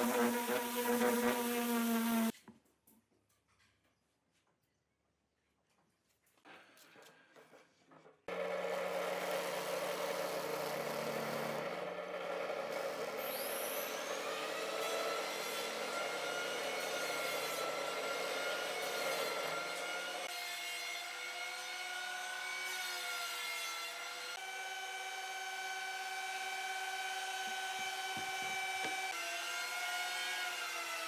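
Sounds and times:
drill press boring wood: 0:08.3 - 0:20.3.

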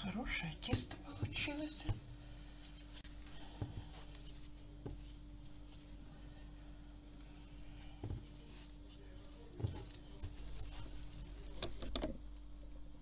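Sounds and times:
faint steady hum: 0:00.0 - 0:13.0
light rubbing of dough: 0:00.3 - 0:11.9
crisp rustling: 0:02.6 - 0:12.2
hands thumping dough: 0:04.8 - 0:05.2, 0:07.9 - 0:08.6.

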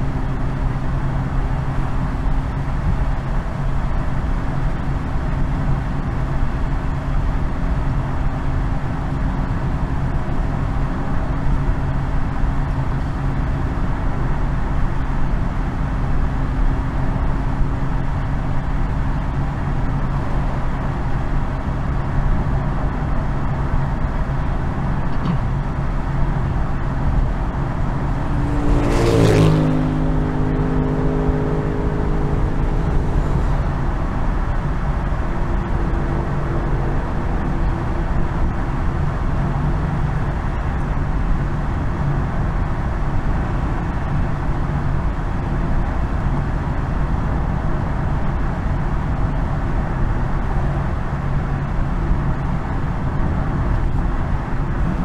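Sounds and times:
car engine cruising: 0:00.0 - 0:55.0
road noise: 0:00.0 - 0:55.0
vehicle whooshing past: 0:27.4 - 0:40.8.

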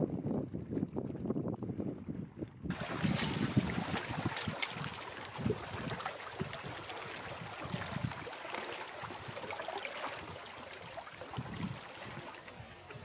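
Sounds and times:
wind buffeting microphone: 0:00.0 - 0:08.3, 0:11.3 - 0:13.0
small waves lapping on rocks: 0:02.7 - 0:13.0.

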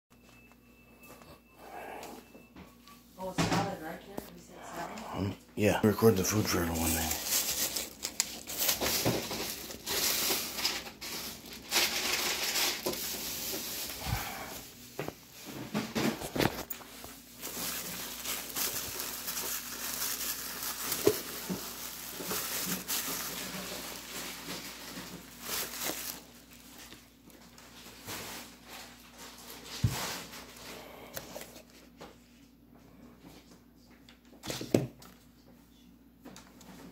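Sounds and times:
plastic bag crinkling: 0:05.9 - 0:14.8, 0:16.2 - 0:30.6.

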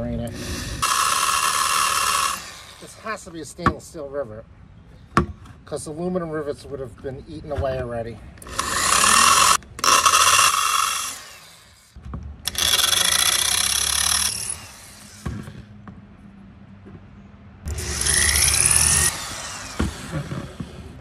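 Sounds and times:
electric drill drilling metal: 0:00.3 - 0:03.0, 0:08.4 - 0:11.9, 0:12.5 - 0:15.3, 0:17.7 - 0:20.7.

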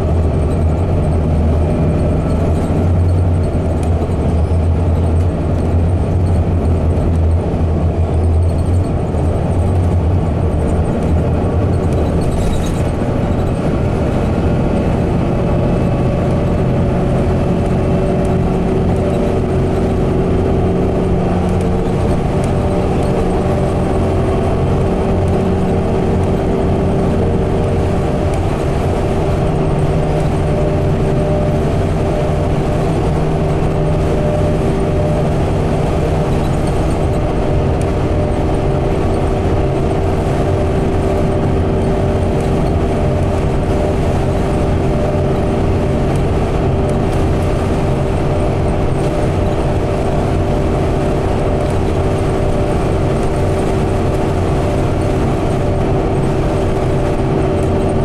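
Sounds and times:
bus engine droning: 0:00.0 - 0:58.0
constant hum: 0:00.0 - 0:58.0
road and tyre noise: 0:00.0 - 0:58.0.

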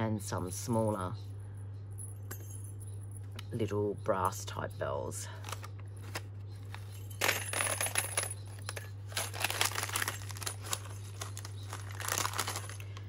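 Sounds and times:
paper bag rustling and crinkling: 0:09.0 - 0:13.0.

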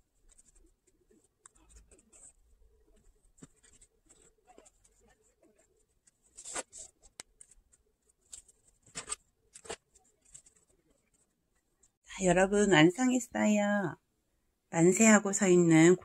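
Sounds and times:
cloth doll rustling: 0:00.0 - 0:11.9.

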